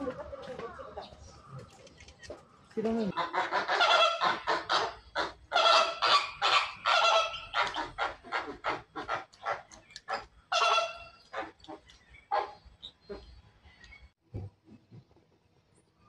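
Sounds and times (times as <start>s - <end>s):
flamingos honking: 3.1s - 9.3s, 10.5s - 11.5s.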